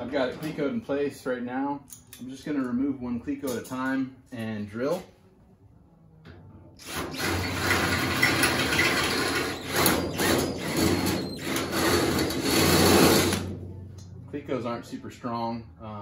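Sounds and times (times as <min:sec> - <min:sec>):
cordless drill boring through metal: 0:06.8 - 0:13.4.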